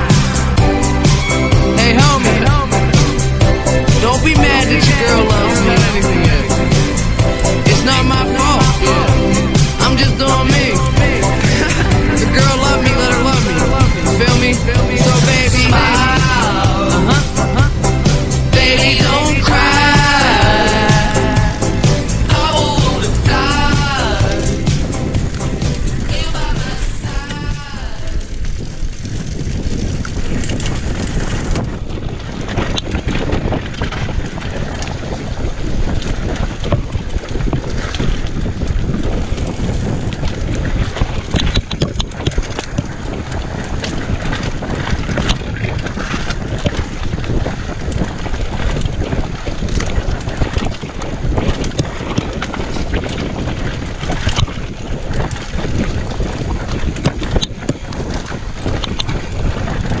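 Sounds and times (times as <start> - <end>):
wind buffeting microphone: 0.0 - 60.0
bike clattering on rough trail: 27.7 - 60.0.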